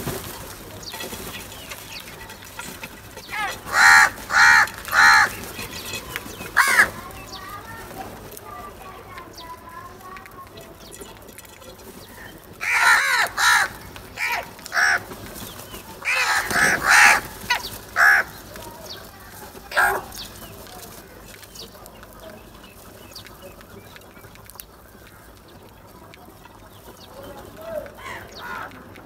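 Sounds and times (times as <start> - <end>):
crows cawing: 1.1 - 7.8, 12.0 - 20.2, 27.5 - 29.0.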